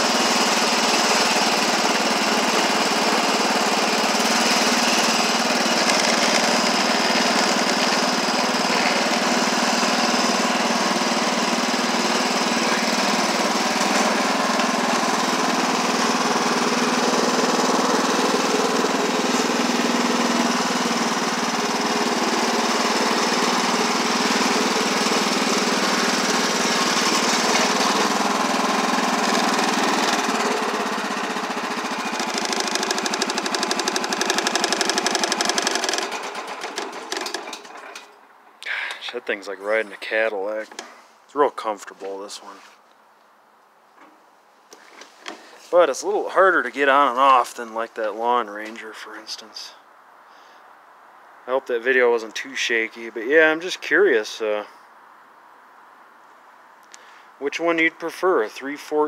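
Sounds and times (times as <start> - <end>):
garden tractor engine running: 0.0 - 42.6.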